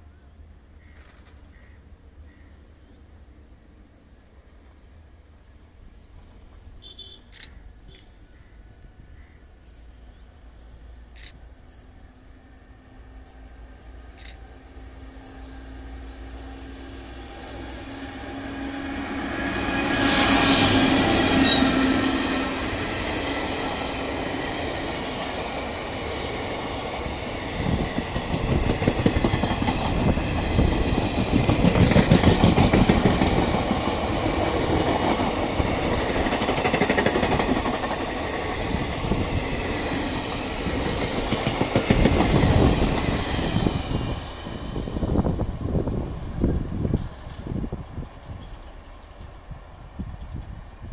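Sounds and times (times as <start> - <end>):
electric locomotive passing: 0.0 - 50.9
train wheels clattering over rail joints: 26.3 - 39.2, 40.2 - 43.9.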